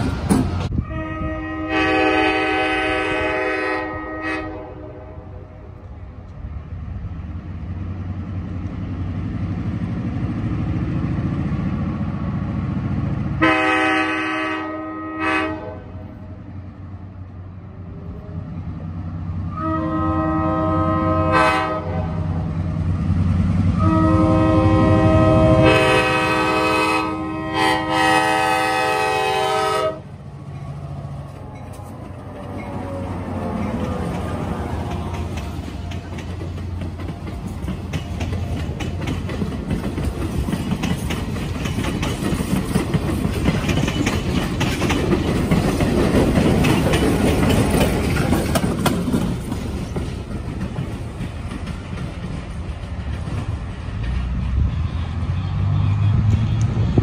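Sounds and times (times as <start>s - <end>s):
train rumbling past: 0.0s - 57.0s
train air horn blasts: 0.7s - 5.6s, 13.4s - 16.2s, 19.5s - 22.4s, 23.7s - 30.1s.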